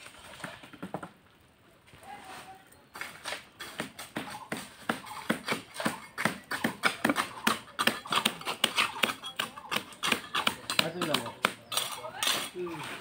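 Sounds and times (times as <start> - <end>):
hand tools scraping wet concrete: 2.2 - 13.0.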